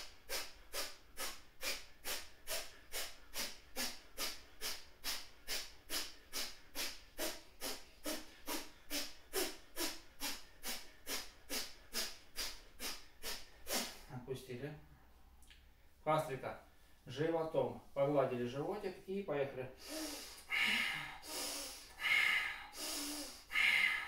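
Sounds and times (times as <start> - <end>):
sharp breaths through the nose: 0.0 - 14.1, 19.8 - 24.0.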